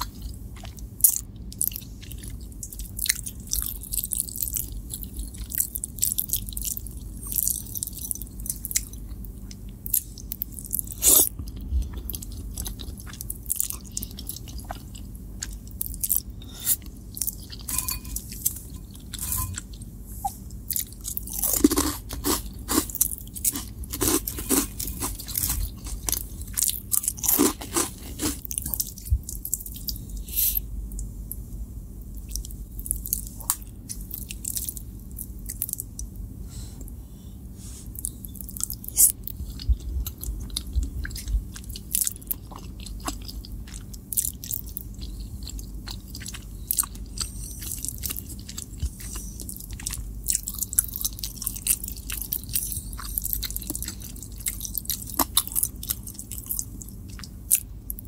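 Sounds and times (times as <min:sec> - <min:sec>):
chewing and slurping noodles: 0:00.0 - 0:30.6, 0:37.9 - 0:58.0
crunching corn puffs: 0:20.9 - 0:28.9.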